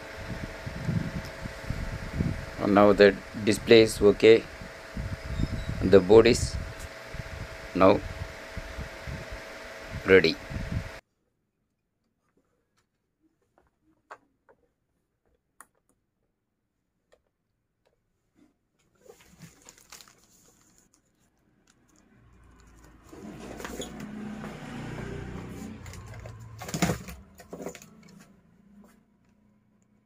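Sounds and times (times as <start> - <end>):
rustling handling noise: 18.1 - 24.1, 25.4 - 29.4.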